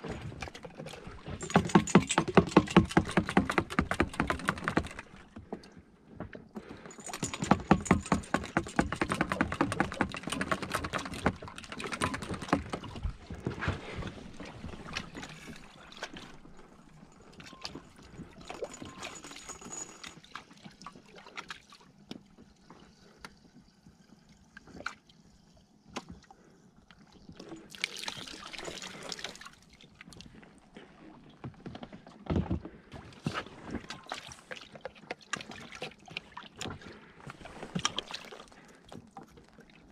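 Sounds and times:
fuel trickling and gurgling: 10.9 - 31.4.

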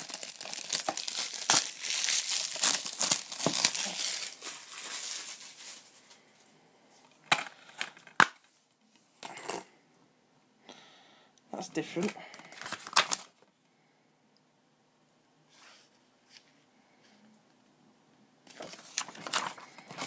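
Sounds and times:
cellophane crinkling and tearing: 0.0 - 6.2, 12.0 - 13.4, 18.5 - 20.0.

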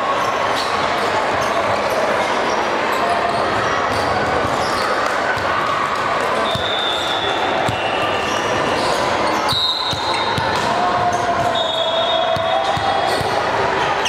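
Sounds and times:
people chattering: 0.0 - 14.0
volleyballs hit and bouncing: 3.4 - 14.0
shoe squeaks: 6.4 - 10.4.

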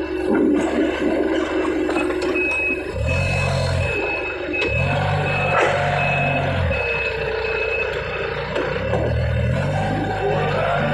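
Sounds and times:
forklift hum: 0.0 - 10.9
forklift warning beeps: 1.5 - 10.9.

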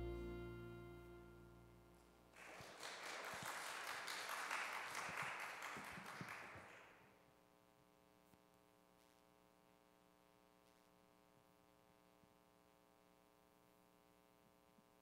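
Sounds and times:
held music chord: 0.0 - 2.0
people clapping: 2.3 - 7.0.

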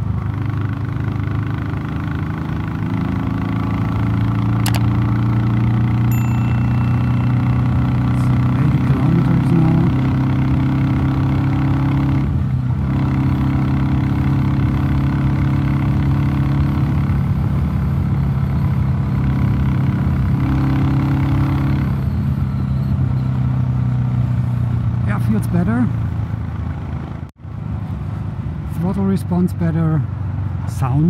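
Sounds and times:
motorcycle engine running: 0.0 - 22.5.

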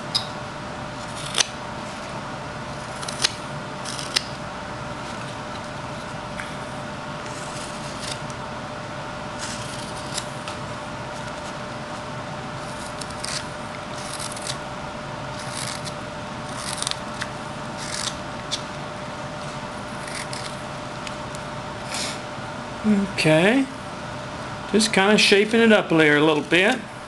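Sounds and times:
steady hum: 0.0 - 27.0
knife scraping wood: 0.9 - 4.4, 7.2 - 8.4, 9.3 - 14.6, 15.3 - 18.7, 19.3 - 20.7.

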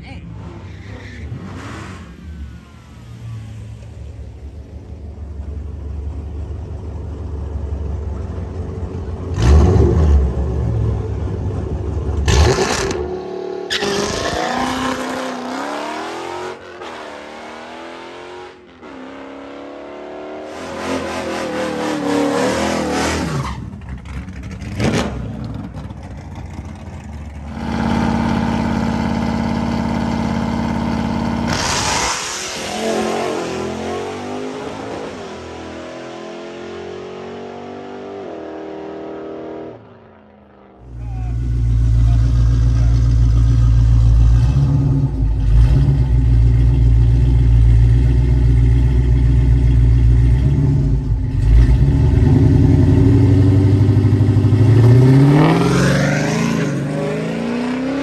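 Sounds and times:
drag racing cars accelerating: 0.0 - 5.0, 12.1 - 46.9, 50.4 - 58.0.

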